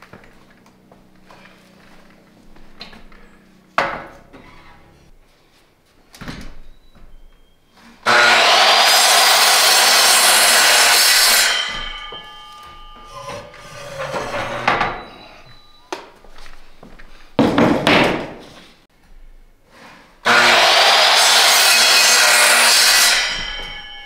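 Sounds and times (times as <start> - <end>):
miter saw cutting wood: 8.0 - 15.7, 20.2 - 24.0
saw blade spinning down: 8.1 - 15.8, 20.3 - 24.0
board knocks: 17.4 - 18.4.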